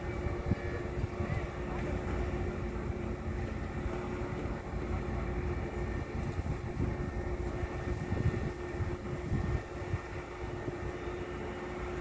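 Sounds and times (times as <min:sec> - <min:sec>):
wind on microphone: 0:00.0 - 0:03.0, 0:05.5 - 0:12.0
heavy machinery engine rumble: 0:00.0 - 0:12.0.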